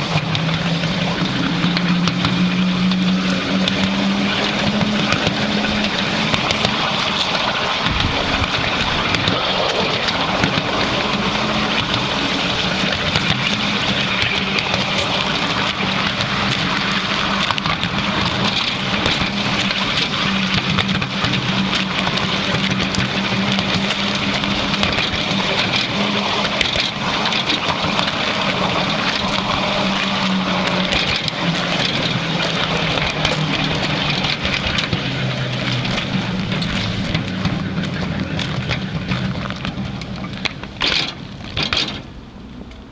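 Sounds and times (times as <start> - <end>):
miniature train drive humming: 0.0 - 42.9
wheels rattling on rails: 0.0 - 42.9.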